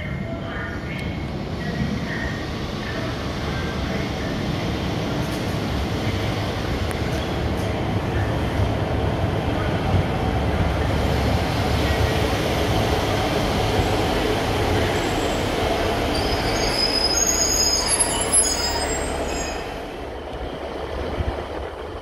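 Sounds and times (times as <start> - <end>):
diesel train engines rumbling: 0.0 - 22.0
high-pitched brake squeal: 16.1 - 19.8.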